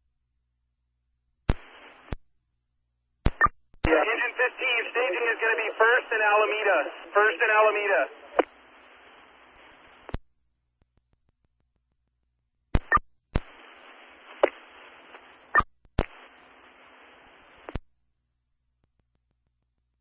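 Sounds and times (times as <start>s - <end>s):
radio static hiss: 1.5s - 2.2s, 3.3s - 10.2s, 12.8s - 17.8s
radio chirps: 3.3s - 10.2s, 12.8s - 17.8s.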